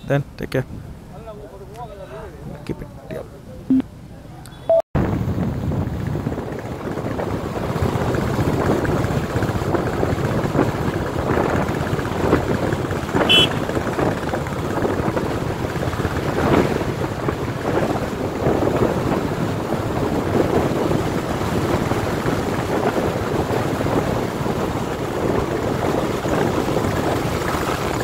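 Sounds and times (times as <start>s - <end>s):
motorcycles running: 5.0s - 28.0s
wind buffeting microphone: 5.0s - 28.0s.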